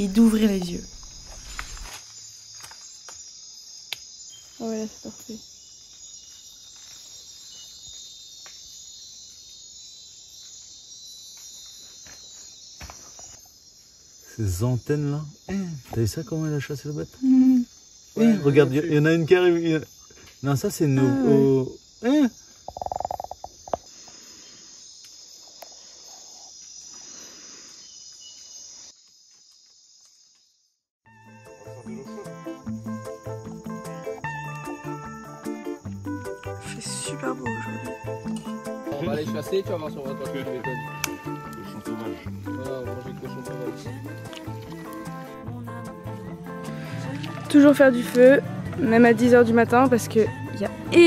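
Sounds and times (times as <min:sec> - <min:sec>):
insect chorus: 0:00.0 - 0:51.0.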